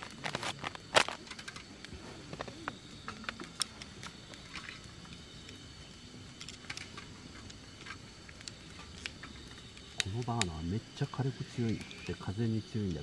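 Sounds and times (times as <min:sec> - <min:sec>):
small objects clicking and tapping: 0:00.0 - 0:05.6, 0:06.3 - 0:10.5
faint high-pitched chirring: 0:00.0 - 0:13.0.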